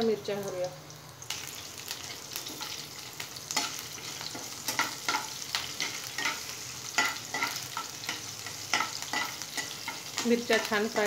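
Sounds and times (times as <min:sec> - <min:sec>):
chillies sizzling in hot oil: 0:00.0 - 0:11.0
spatula scraping pan: 0:03.5 - 0:10.2.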